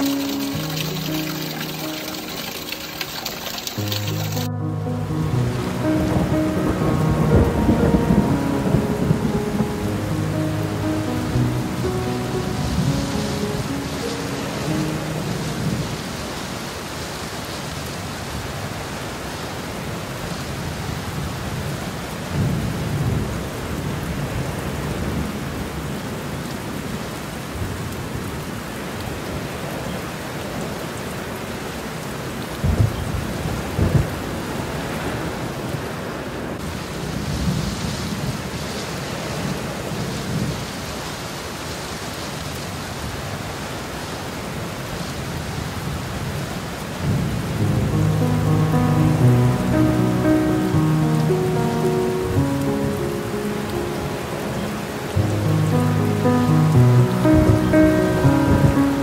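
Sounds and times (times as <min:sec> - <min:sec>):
floodwater rushing across road: 0:00.0 - 0:59.0.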